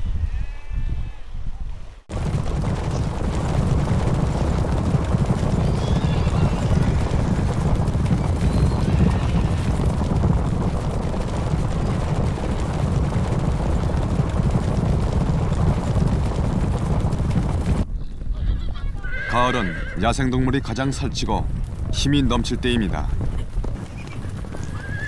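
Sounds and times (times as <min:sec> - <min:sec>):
rumble of galloping hooves: 0:01.8 - 0:25.0
faint horse whinnies: 0:18.4 - 0:20.2, 0:23.9 - 0:25.0.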